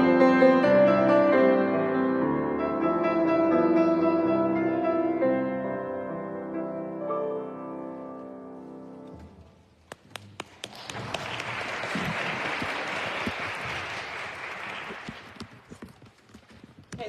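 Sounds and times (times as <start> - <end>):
audience applause: 9.9 - 16.0.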